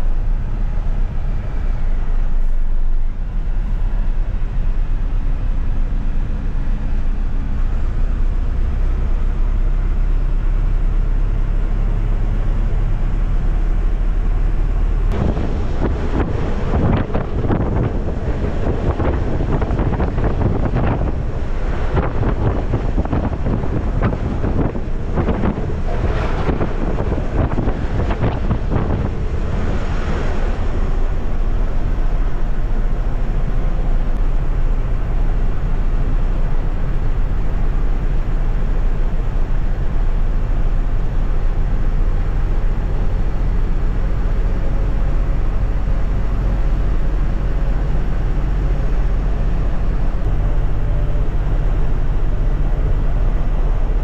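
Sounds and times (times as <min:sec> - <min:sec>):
bus engine drone inside cabin: 0:00.0 - 0:54.0
wind buffeting microphone: 0:15.0 - 0:54.0.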